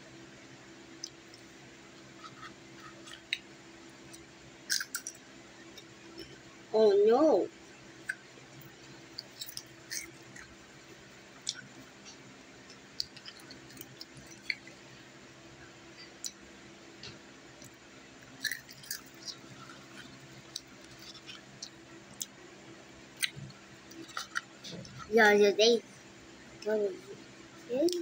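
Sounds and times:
faint electric fan hum: 0.0s - 28.0s
child crunching chips: 4.7s - 5.2s, 9.2s - 10.4s, 18.4s - 21.6s.

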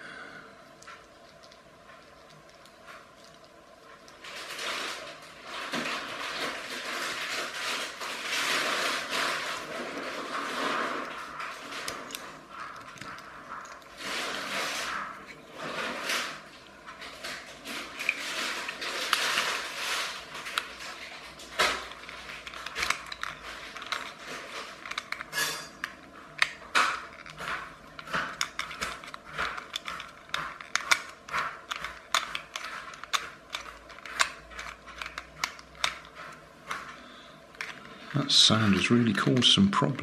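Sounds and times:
plastic toy parts clicking and scraping: 0.8s - 39.6s.

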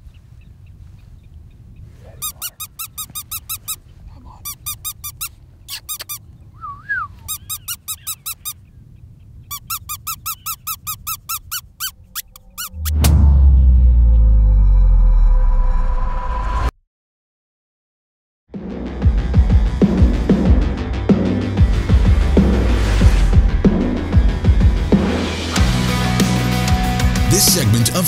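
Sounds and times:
high squeaky distress cries: 2.1s - 6.3s, 7.1s - 8.7s, 9.5s - 12.9s
deep music sting: 12.7s - 16.7s, 18.7s - 27.4s.

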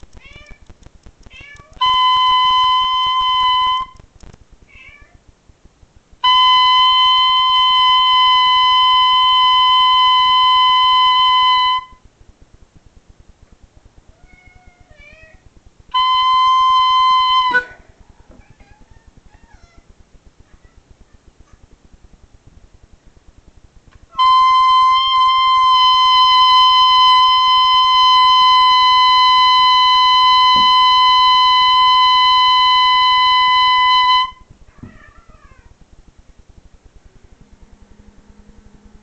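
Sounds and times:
cat meowing: 0.1s - 0.6s, 1.3s - 1.9s, 14.1s - 15.4s, 17.4s - 19.9s, 34.7s - 35.8s
oboe holding high note: 15.9s - 17.9s, 24.1s - 34.4s.

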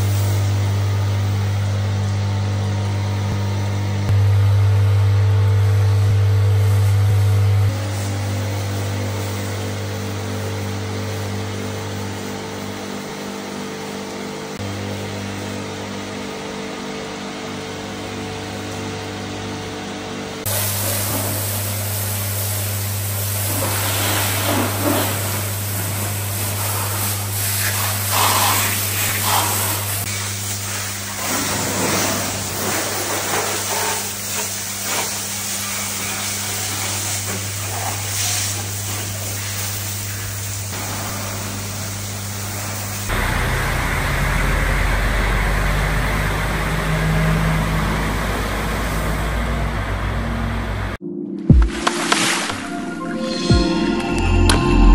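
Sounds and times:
pressure washer pump hum: 0.0s - 52.6s
high-pressure water spray on metal: 20.5s - 46.4s
diesel truck engine rumbling: 43.1s - 51.0s.

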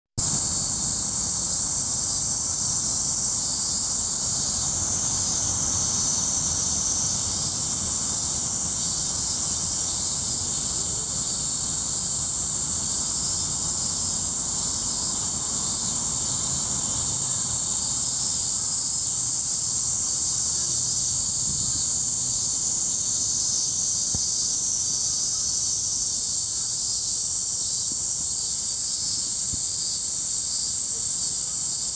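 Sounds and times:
cicadas droning: 0.2s - 31.9s.

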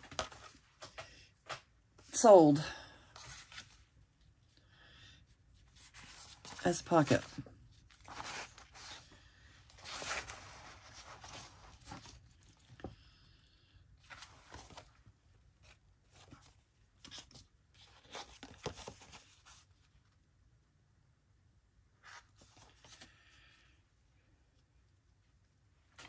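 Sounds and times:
paper rustling and crinkling: 0.0s - 1.6s, 5.7s - 12.9s, 14.0s - 19.8s.

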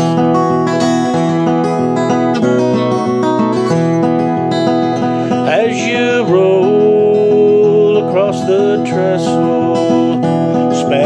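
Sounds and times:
acoustic guitar strumming: 0.0s - 11.0s
man singing long note: 5.5s - 11.0s.

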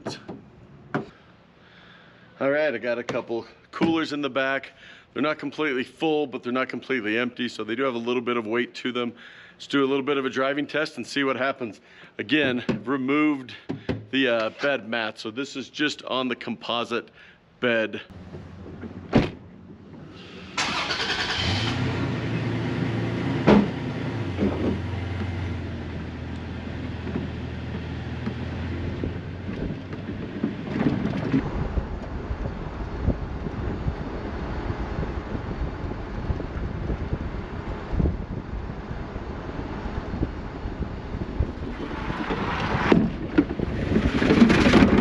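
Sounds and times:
knocks: 0.0s - 1.1s, 23.4s - 23.8s
truck engine starting and idling: 18.1s - 31.9s
wind and road noise: 18.1s - 45.0s
sharp thump: 19.1s - 19.4s, 23.4s - 23.8s.

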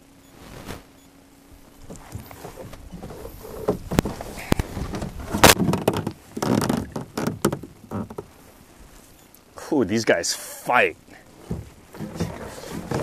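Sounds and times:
handling knocks and rubbing: 1.8s - 8.4s, 11.4s - 13.0s.

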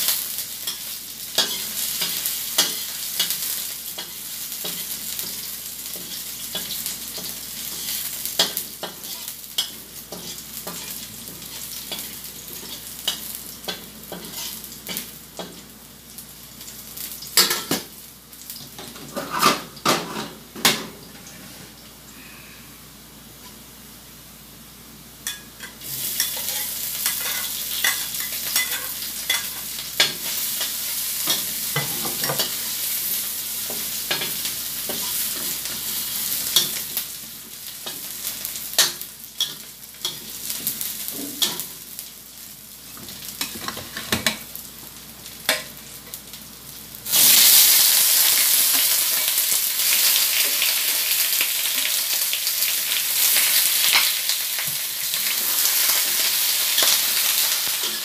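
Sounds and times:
chicken sizzling loudly: 0.0s - 17.4s, 25.8s - 42.9s, 46.5s - 58.0s
garlic sizzling in oil: 0.0s - 21.8s, 25.2s - 58.0s.

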